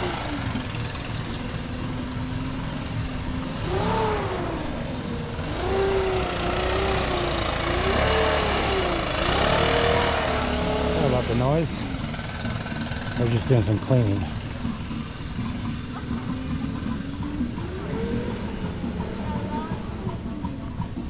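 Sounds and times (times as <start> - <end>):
cleaning machine motor revving: 5.4 - 13.4.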